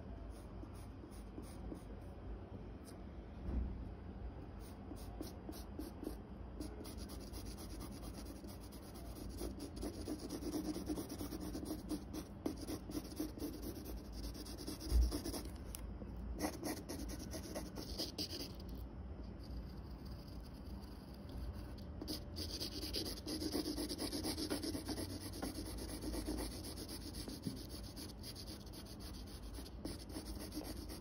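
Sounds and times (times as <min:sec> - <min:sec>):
pencil scratching on paper: 0:05.0 - 0:15.5, 0:16.4 - 0:18.6, 0:21.6 - 0:31.0.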